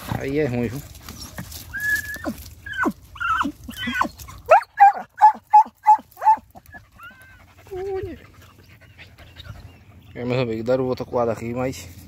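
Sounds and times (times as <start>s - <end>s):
dog whining and yelping: 1.4s - 10.0s.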